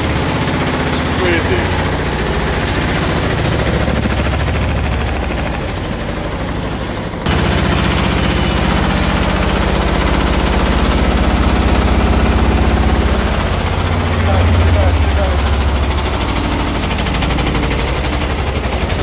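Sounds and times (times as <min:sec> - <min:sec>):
washing machine banging rattle: 0:00.0 - 0:19.0.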